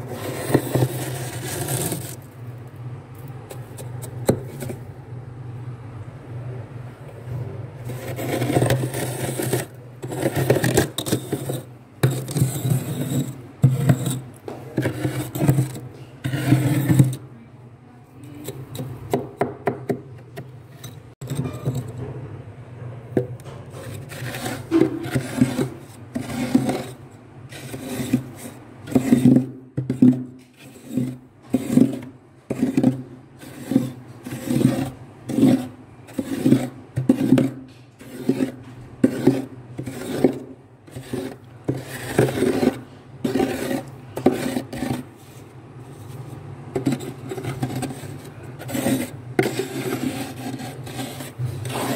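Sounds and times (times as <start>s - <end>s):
glass cup scraping frost: 0.0s - 2.4s, 7.8s - 17.2s, 20.7s - 22.0s, 23.7s - 51.9s.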